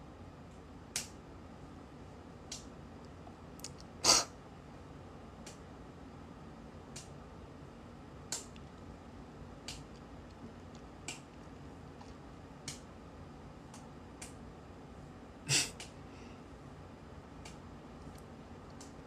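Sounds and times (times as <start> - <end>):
faint sharp clicks: 6.9 - 7.1, 12.0 - 12.9.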